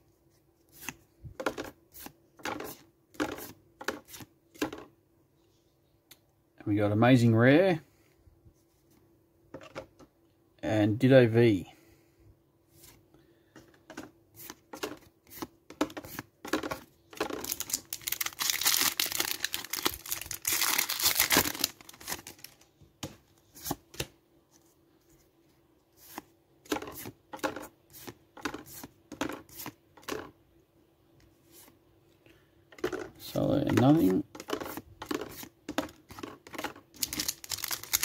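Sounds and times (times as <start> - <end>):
cards sliding and clicking: 0.6 - 4.8, 14.0 - 16.8, 23.5 - 24.7, 26.0 - 30.3, 33.7 - 38.0
foil pack tearing and crinkling: 17.4 - 22.6, 36.9 - 38.0.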